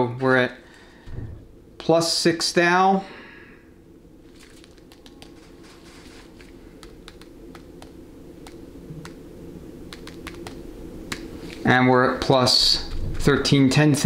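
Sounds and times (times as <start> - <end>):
steady low hum: 0.0 - 14.0
fingertips tapping phone screen: 4.6 - 5.5, 6.8 - 9.2, 9.9 - 11.2.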